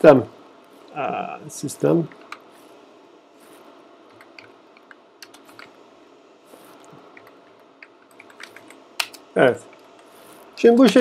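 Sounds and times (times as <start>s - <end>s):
faint keyboard typing: 6.8s - 11.0s.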